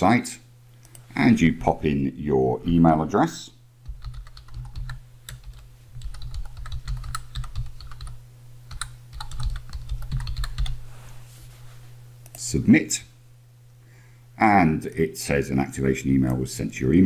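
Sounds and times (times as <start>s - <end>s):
keyboard typing clicks: 3.9s - 10.8s.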